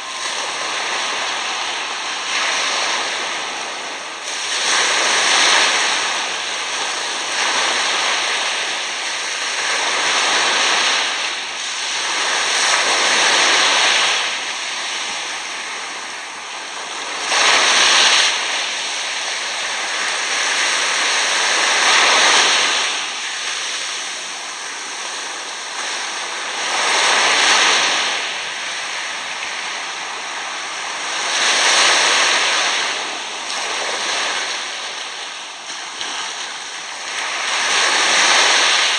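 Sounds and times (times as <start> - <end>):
small waves washing over sand: 0.0 - 38.9.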